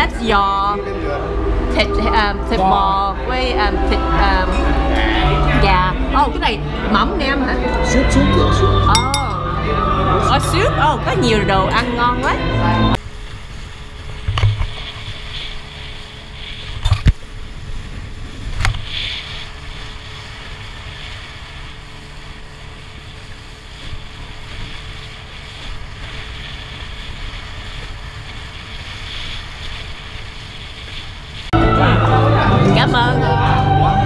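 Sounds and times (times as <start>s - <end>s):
low rumble of boat machinery: 0.0s - 34.0s
tableware clinking: 8.9s - 9.6s.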